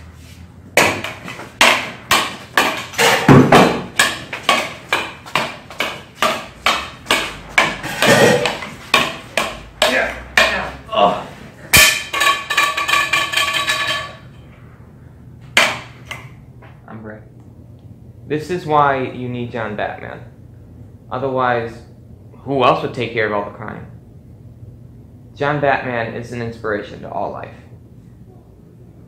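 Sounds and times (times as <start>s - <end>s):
wooden sticks clacking: 0.8s - 10.8s, 11.7s - 14.3s.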